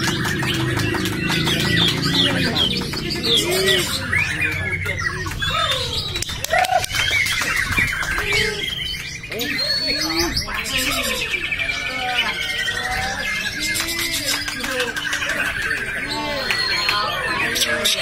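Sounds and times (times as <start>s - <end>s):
many songbirds singing: 0.0s - 18.0s.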